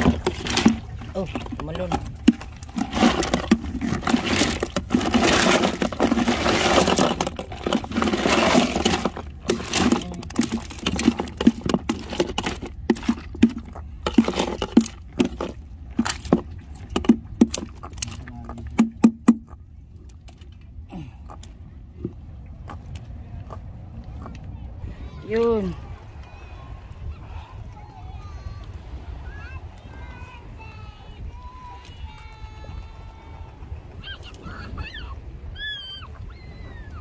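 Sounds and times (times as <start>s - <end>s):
scraping rustle: 0.0s - 18.6s
fish flapping against ice: 0.0s - 18.8s.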